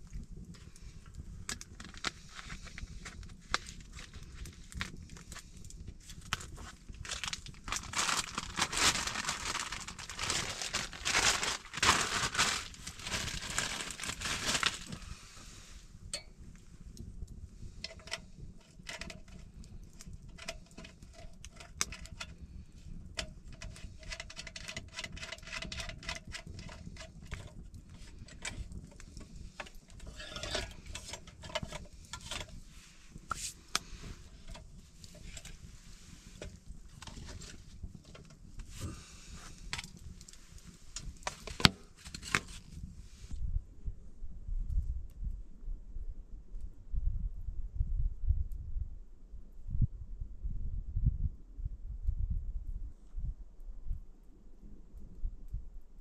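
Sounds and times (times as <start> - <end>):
rustling and crinkling handling noise: 0.0 - 16.7, 17.8 - 43.4
sharp crackles and clicks: 0.0 - 42.9
faint steady hum: 0.0 - 56.0.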